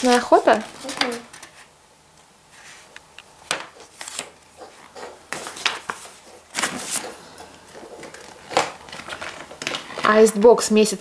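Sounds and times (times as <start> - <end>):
cardboard rustling and knocking: 3.4 - 9.9.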